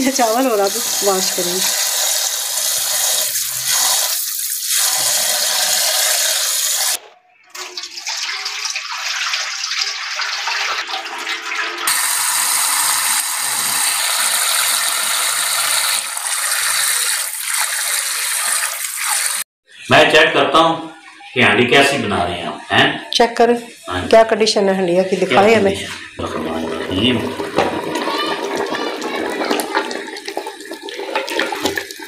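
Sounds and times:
water running from a tap: 0.0 - 7.0, 7.6 - 19.5, 26.2 - 32.0.

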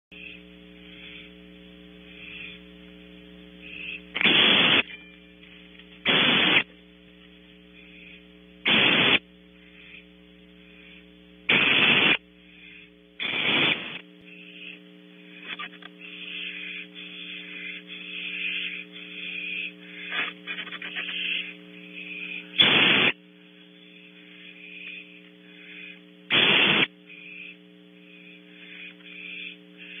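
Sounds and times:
electrical mains hum: 0.1 - 30.0
soft scratchy owl calls: 0.2 - 2.8, 3.6 - 6.7, 7.6 - 30.0
barn owl screeching: 3.6 - 4.8, 12.6 - 23.2, 23.8 - 30.0.

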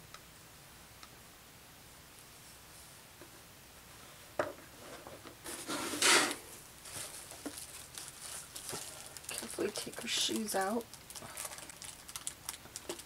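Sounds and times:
rustling and scraping: 2.2 - 10.5.

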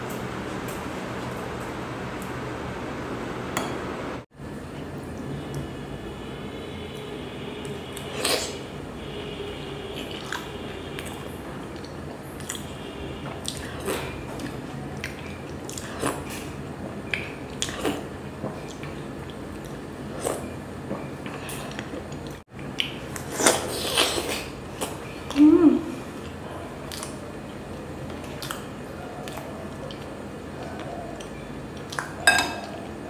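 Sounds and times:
close chewing mouth sounds: 10.0 - 20.5.

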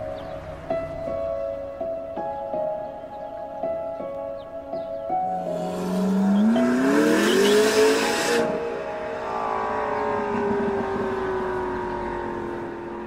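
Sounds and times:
sports car engine revving: 5.4 - 13.0.

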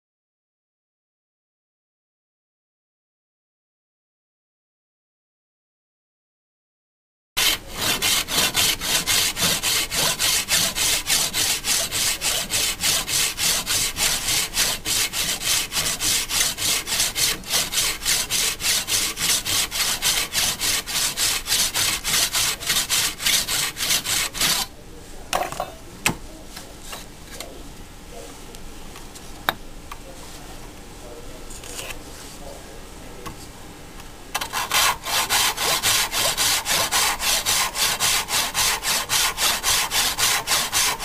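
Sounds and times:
hand saw cutting wood: 7.4 - 24.7, 34.4 - 41.0.

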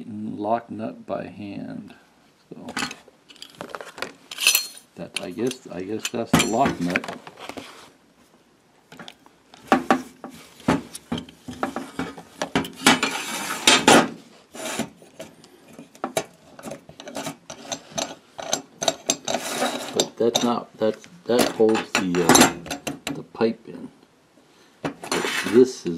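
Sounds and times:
metal and plastic pieces clinking: 2.8 - 7.0.

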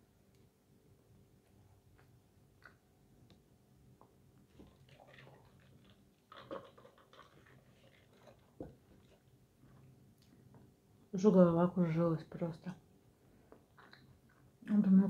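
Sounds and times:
chewing with mouth clicks: 4.5 - 10.3, 13.7 - 14.5.

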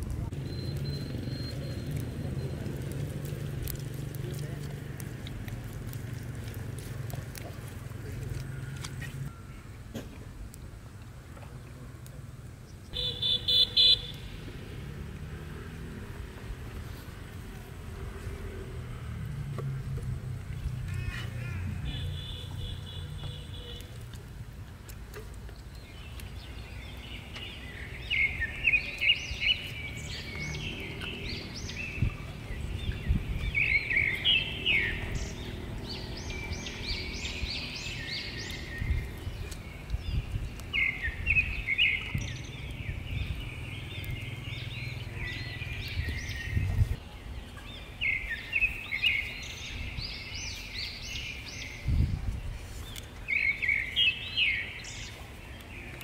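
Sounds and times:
songbirds chirping: 0.0 - 56.0.

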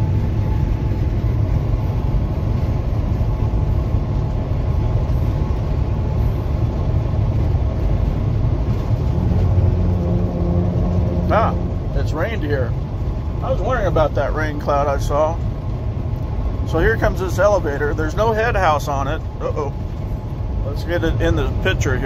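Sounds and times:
truck engine and road noise: 0.0 - 22.0.

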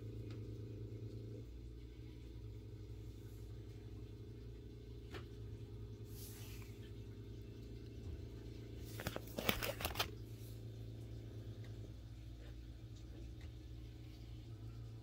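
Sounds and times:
steady low hum: 0.0 - 15.0
plastic crinkling rustle: 8.8 - 10.2
plastic sleeve pages swishing: 8.9 - 10.1.

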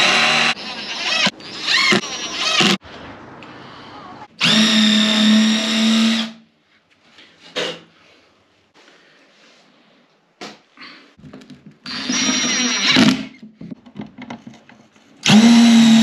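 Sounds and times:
cordless drill driving screw: 11.9 - 13.3, 15.2 - 16.0.

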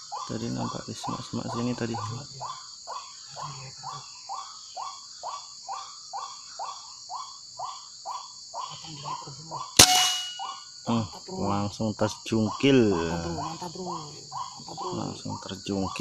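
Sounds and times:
insect trill: 0.0 - 16.0
air rifle shot: 9.8 - 10.6.

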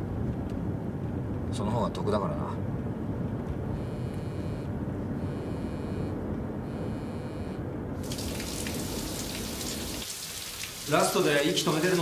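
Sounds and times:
car interior rumble: 0.0 - 8.0
phone alert pulsing: 3.7 - 7.6
shower running: 8.0 - 12.0.

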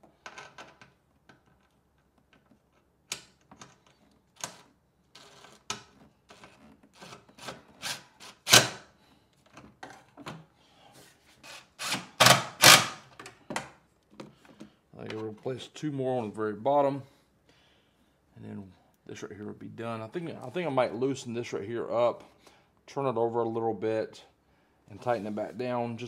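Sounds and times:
tools and bolts clicking and scraping: 0.0 - 8.8.

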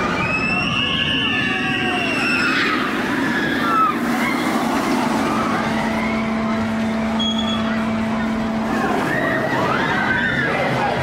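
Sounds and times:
low hum: 0.0 - 11.0
roller coaster train rushing past: 0.0 - 11.0
riders crying out: 0.2 - 6.7, 7.5 - 11.0.

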